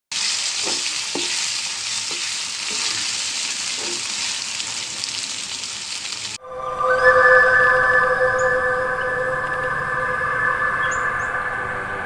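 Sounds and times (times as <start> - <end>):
food frying in hot oil: 0.1 - 6.4.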